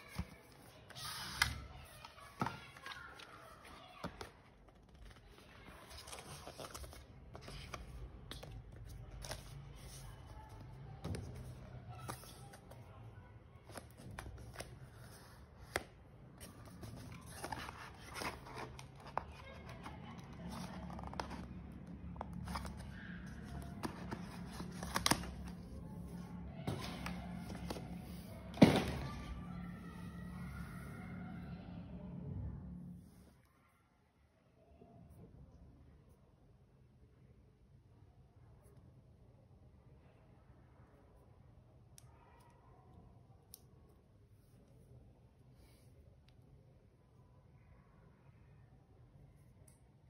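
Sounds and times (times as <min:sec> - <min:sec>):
paper packaging rustling and clicking: 0:13.6 - 0:29.2.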